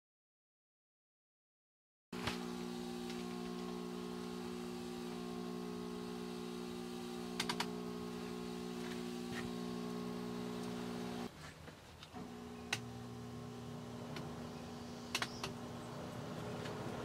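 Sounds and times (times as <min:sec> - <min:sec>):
motor hum: 0:02.2 - 0:11.3, 0:12.0 - 0:17.0
quick clicks: 0:07.4 - 0:07.8, 0:15.1 - 0:15.6.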